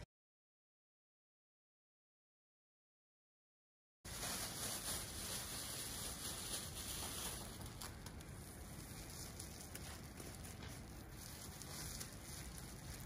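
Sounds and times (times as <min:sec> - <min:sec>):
faint crackles: 0:04.1 - 0:13.0
plastic cap crinkling: 0:04.2 - 0:13.0.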